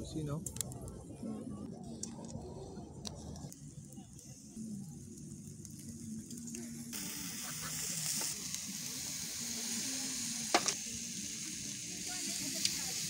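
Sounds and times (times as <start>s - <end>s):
sauce sizzling on a grill: 4.6s - 13.0s
sharp pop: 10.5s - 10.8s.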